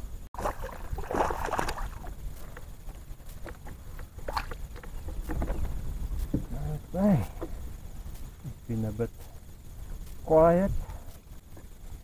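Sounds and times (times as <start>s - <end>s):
wind rumble on microphone: 0.0s - 8.8s
rustle: 0.0s - 12.0s.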